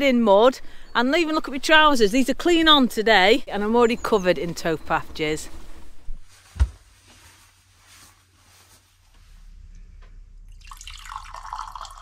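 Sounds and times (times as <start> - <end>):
hot drink pouring into a mug: 10.6 - 12.0.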